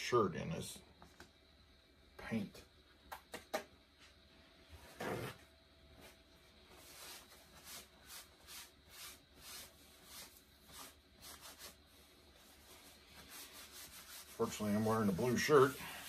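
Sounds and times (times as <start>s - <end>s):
cloth rubbing on cloth: 6.7s - 16.0s.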